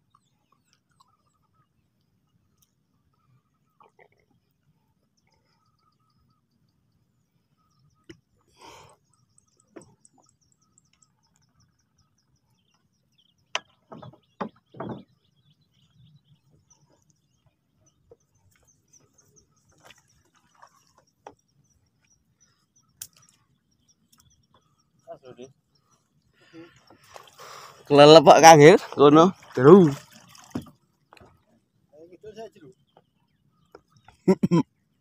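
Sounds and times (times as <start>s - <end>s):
birds trilling: 7.5s - 30.5s
knocks: 13.5s - 15.1s
water splashes: 19.2s - 21.5s, 26.5s - 31.5s.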